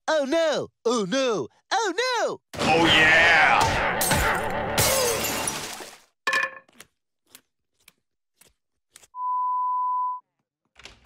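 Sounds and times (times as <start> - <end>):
glass crashing and breaking: 4.0 - 6.0
clinks of falling glass pieces: 4.8 - 6.6.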